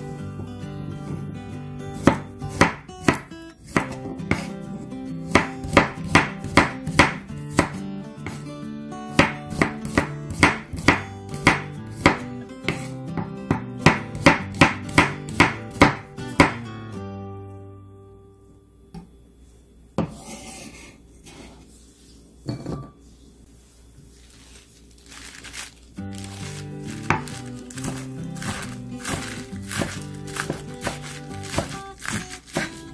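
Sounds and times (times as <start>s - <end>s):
quiet guitar music: 0.0s - 19.2s, 25.9s - 32.9s.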